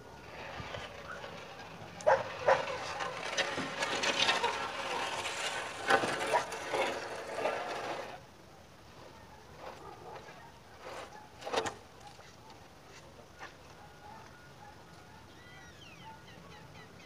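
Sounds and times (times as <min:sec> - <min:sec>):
concrete beam scraping on ground: 0:00.0 - 0:08.3, 0:09.5 - 0:11.8.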